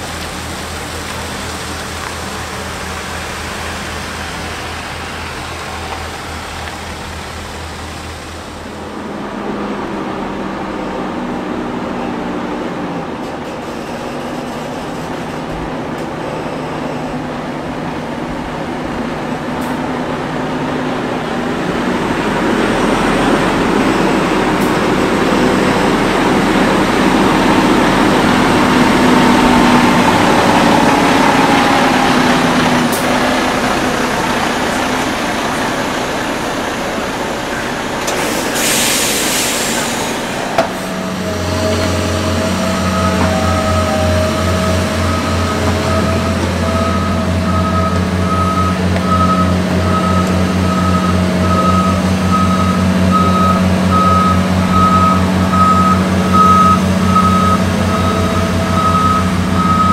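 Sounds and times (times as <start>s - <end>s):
truck diesel engine running: 0.0s - 59.9s
air hiss: 38.2s - 41.0s.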